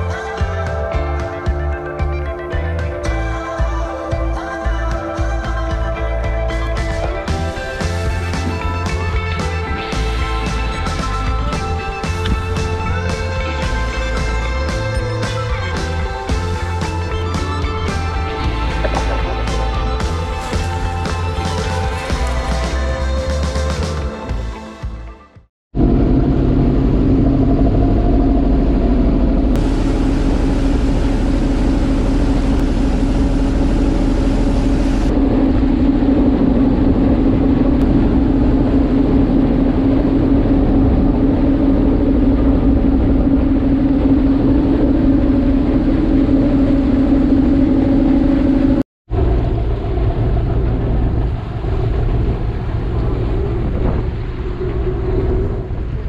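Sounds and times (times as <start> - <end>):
ferry engine drone: 0.0 - 25.0, 25.7 - 56.0
wind: 25.7 - 56.0.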